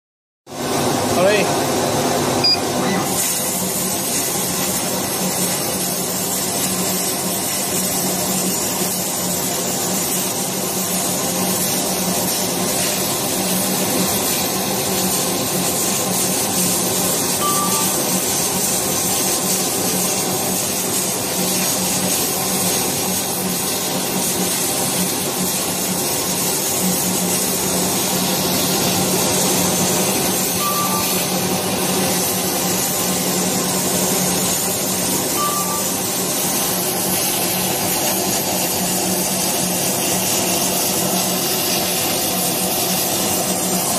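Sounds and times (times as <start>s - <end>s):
laser cutting machine running: 0.5s - 43.9s.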